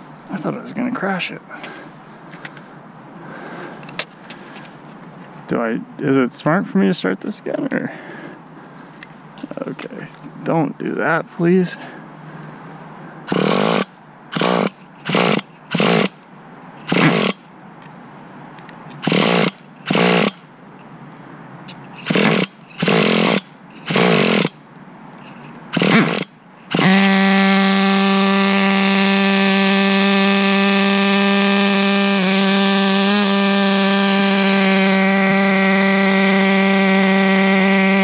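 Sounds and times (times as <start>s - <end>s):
two-stroke engine cranking and running: 13.3s - 16.2s, 16.9s - 17.4s, 19.0s - 20.4s, 22.0s - 24.6s, 25.3s - 38.0s.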